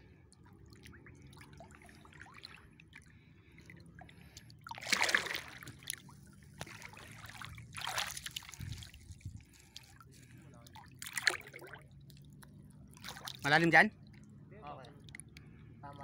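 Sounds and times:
wading through shallow water: 0.0s - 16.0s
loud water splashes: 4.7s - 6.0s, 6.6s - 9.0s, 11.0s - 11.8s.

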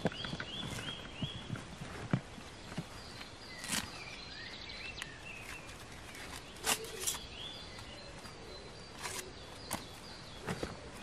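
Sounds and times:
faint forest background: 0.0s - 11.0s.

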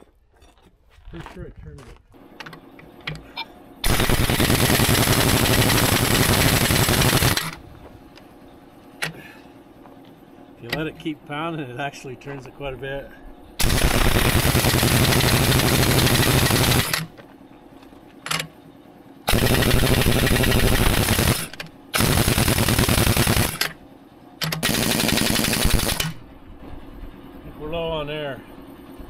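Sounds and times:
pneumatic impact wrench hammering: 3.8s - 7.6s, 13.6s - 17.2s, 19.3s - 23.8s, 24.4s - 26.2s.

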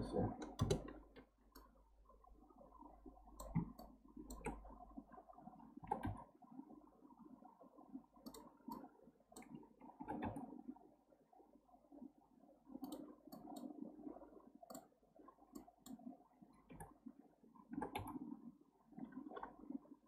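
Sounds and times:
mouse and keyboard clicks: 0.4s - 1.7s, 3.4s - 4.6s, 5.8s - 6.2s, 8.2s - 10.4s, 12.8s - 13.7s, 17.7s - 18.2s.

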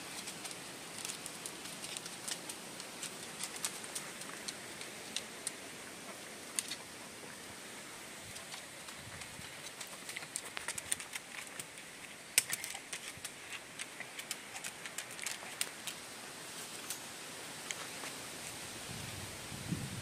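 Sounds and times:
steady hiss: 0.0s - 20.0s
dog claws clicking: 8.4s - 16.0s.

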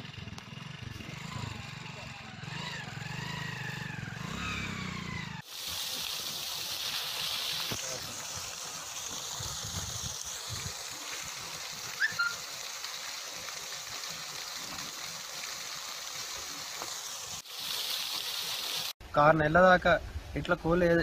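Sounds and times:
water gushing from a pipe: 5.4s - 19.0s.

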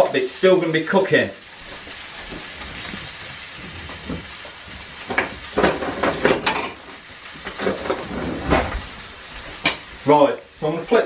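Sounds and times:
steak sizzling in a frying pan: 0.0s - 11.0s
sharp knocks and clatters: 5.1s - 6.8s.

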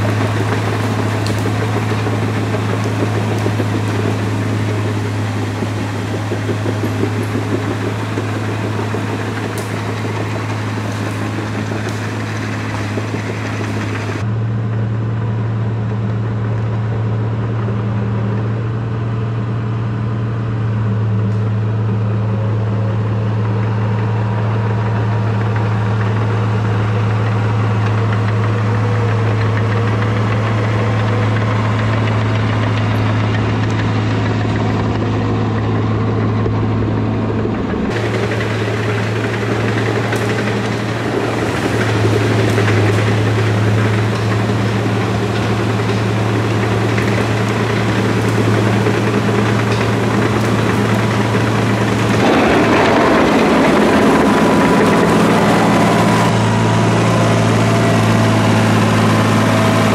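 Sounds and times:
machine clatter and hiss: 0.0s - 14.2s, 37.7s - 56.4s
bulldozer diesel engine droning: 0.0s - 59.9s.

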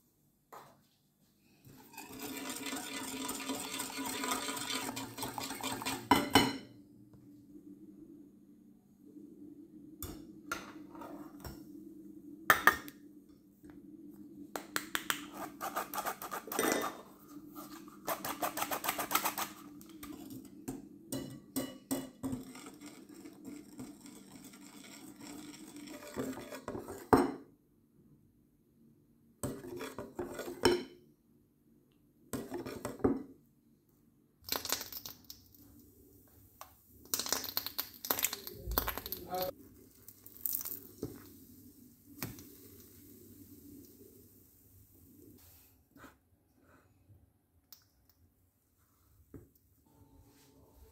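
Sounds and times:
wire whisk scraping glass bowl: 1.8s - 6.2s, 17.6s - 20.3s, 22.2s - 27.0s.

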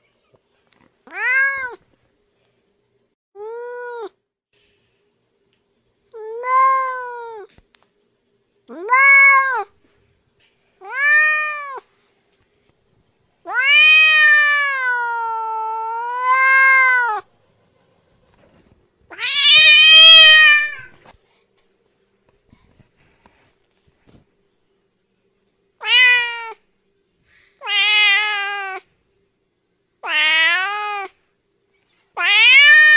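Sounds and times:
cat meowing: 1.1s - 1.8s, 8.7s - 9.7s, 10.8s - 11.8s, 13.5s - 17.3s, 19.1s - 20.9s, 25.8s - 26.6s, 27.6s - 28.8s, 30.0s - 31.2s, 32.2s - 32.9s.

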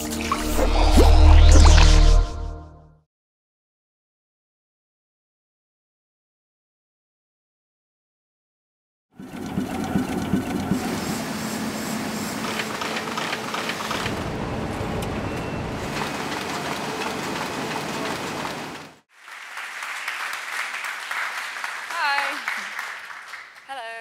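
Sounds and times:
printing press running: 9.2s - 19.0s
audience noise: 19.2s - 23.4s.

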